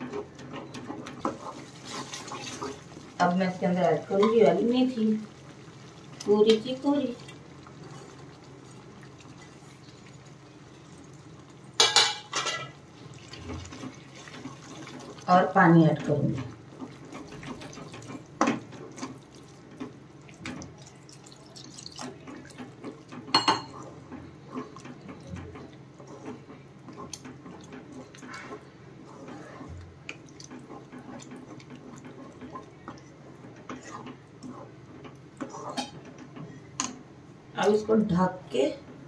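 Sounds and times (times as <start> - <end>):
water pouring and splashing: 1.2 - 3.2, 12.9 - 15.5, 16.4 - 23.5.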